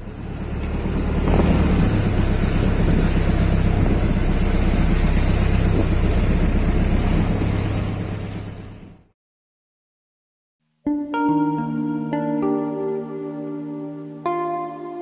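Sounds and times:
boat engine humming: 0:00.0 - 0:09.0
wind noise on microphone: 0:01.2 - 0:07.6.

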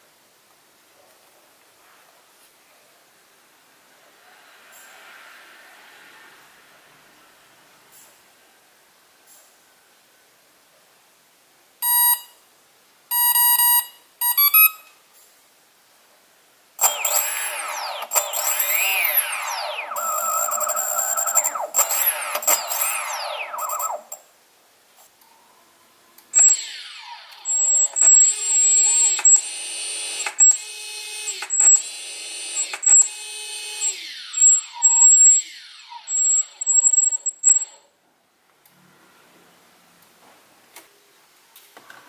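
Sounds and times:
electric motor whining: 0:16.8 - 0:24.2.

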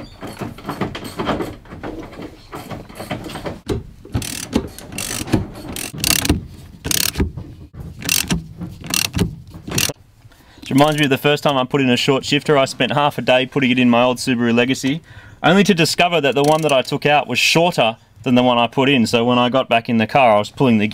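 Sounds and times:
plastic trim knocking and rattling: 0:00.0 - 0:10.0
socket ratchet clicking: 0:04.2 - 0:07.2, 0:08.0 - 0:10.0, 0:16.4 - 0:16.8.

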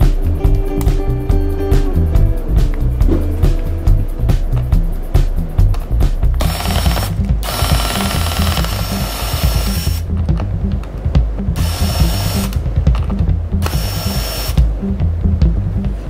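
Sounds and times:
background music with drum beat: 0:00.0 - 0:16.0
electric screwdriver whirring: 0:06.4 - 0:10.0, 0:11.6 - 0:12.6, 0:13.6 - 0:14.6.

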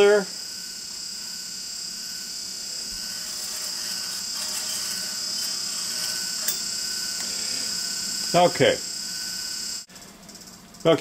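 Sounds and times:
high-pitched hiss: 0:00.0 - 0:11.0
metal strip scraping: 0:03.0 - 0:07.3.

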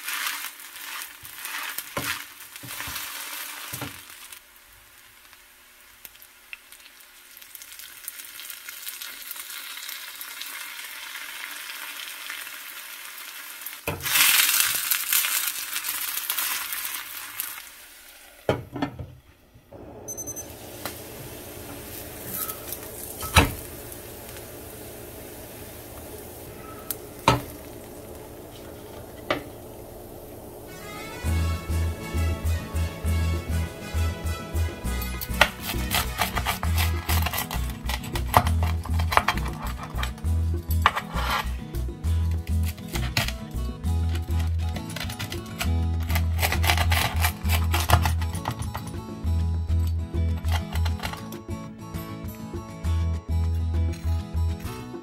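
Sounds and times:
spatula scraping a pan: 0:00.0 - 0:03.8, 0:31.6 - 0:43.4
potato frying in oil: 0:00.0 - 0:48.9.

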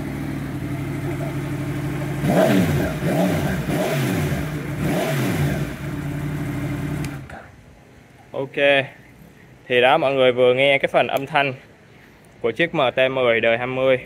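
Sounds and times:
motorcycle engine idling and revving: 0:00.0 - 0:07.7.

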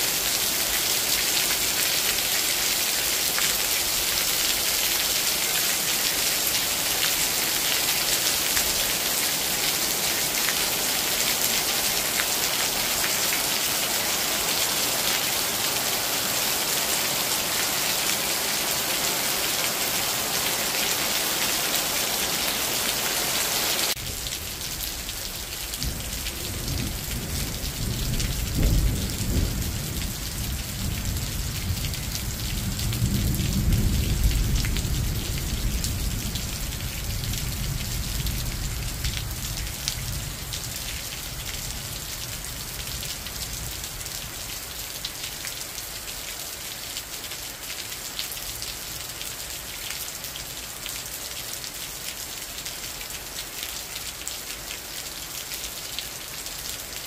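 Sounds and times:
steady rain: 0:00.0 - 0:57.0
rolling thunder rumble: 0:25.8 - 0:36.6.

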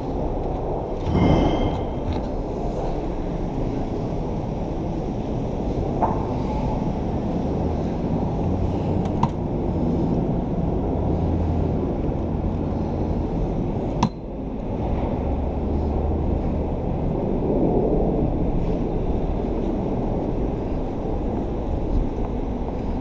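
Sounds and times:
city street traffic: 0:00.0 - 0:23.0
wind on microphone: 0:00.0 - 0:23.0.

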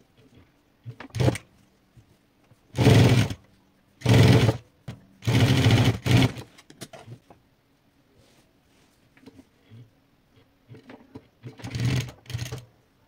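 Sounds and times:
sewing machine stitching: 0:01.0 - 0:01.4, 0:02.8 - 0:03.4, 0:04.0 - 0:04.6, 0:05.2 - 0:06.5, 0:11.4 - 0:12.7.

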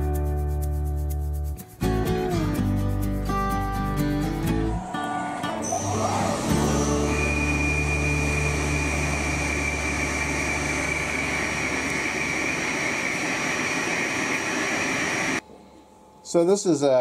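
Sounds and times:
lathe low hum: 0:04.3 - 0:15.4
high cutting whine: 0:04.4 - 0:15.4
coolant spray hiss: 0:06.0 - 0:15.4.

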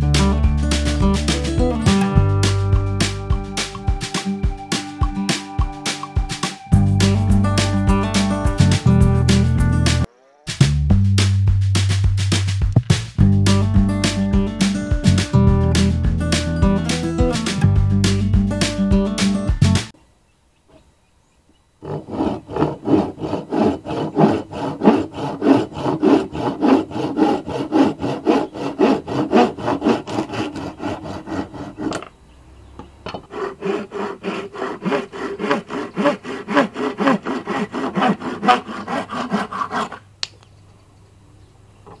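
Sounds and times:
hand saw cutting wood: 0:00.2 - 0:03.2, 0:21.8 - 0:32.2, 0:33.1 - 0:40.1.

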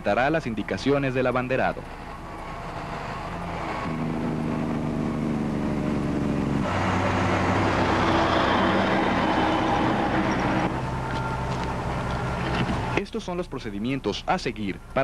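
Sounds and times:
dump truck diesel engine: 0:00.0 - 0:13.1.

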